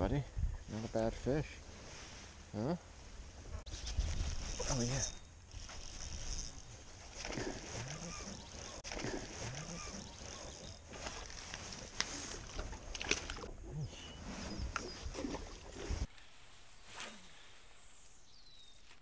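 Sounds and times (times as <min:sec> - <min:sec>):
fishing rod swish: 0:16.8 - 0:17.9.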